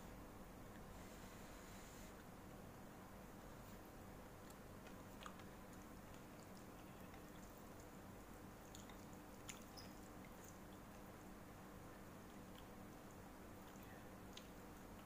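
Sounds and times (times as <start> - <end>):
low steady hum: 0.0 - 15.0
chewing noodles: 4.4 - 11.2.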